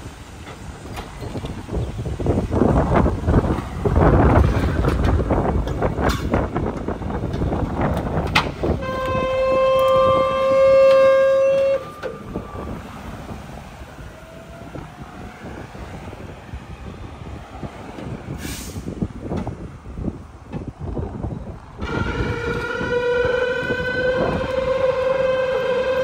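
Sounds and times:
engine and road noise: 0.0s - 26.0s
vehicle horn two-note: 8.8s - 12.2s
short hiss: 18.4s - 19.0s.

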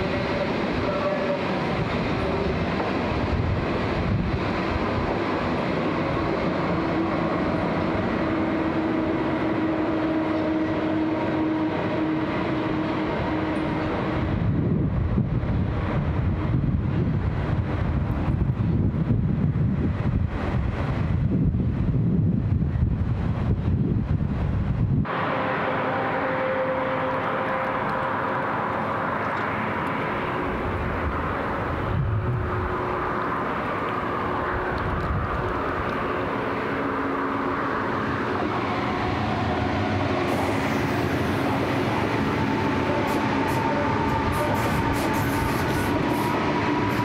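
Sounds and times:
high-speed electric train passing: 0.0s - 47.0s
wind rumble on microphone: 1.8s - 7.6s, 13.9s - 25.1s, 28.7s - 36.8s.

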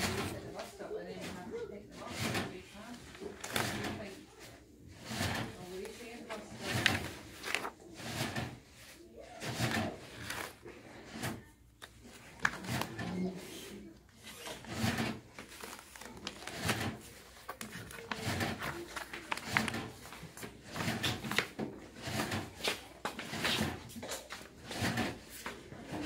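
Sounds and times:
paper pages rustling: 2.2s - 4.5s, 5.1s - 9.0s, 9.7s - 21.6s.

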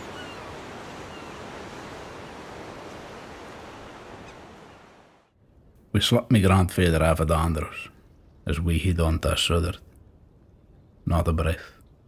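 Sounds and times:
sea surf washing: 0.0s - 5.3s.

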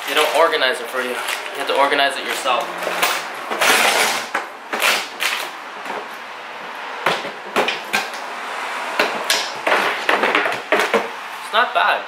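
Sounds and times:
plastic wrapping rustling: 0.0s - 6.2s
plastic toolbox clicks and knocks: 9.0s - 11.1s.

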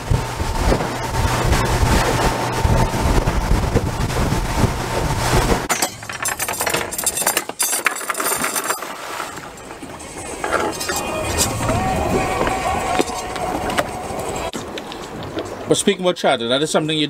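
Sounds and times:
boat motor running: 0.0s - 15.7s
water rushing: 0.0s - 15.8s
wind: 0.0s - 17.0s
anchor chain clinking and rattling: 5.7s - 11.7s.

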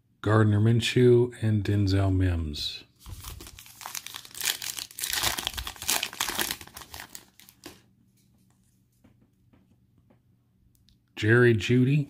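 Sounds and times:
foil wrapper tearing and crinkling: 3.0s - 7.8s.

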